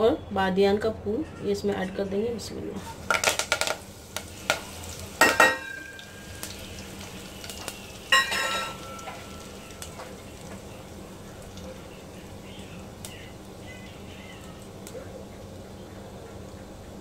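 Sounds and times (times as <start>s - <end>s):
spices sizzling in hot oil: 2.8s - 17.0s
metallic clanks of pot stirring: 8.1s - 10.1s.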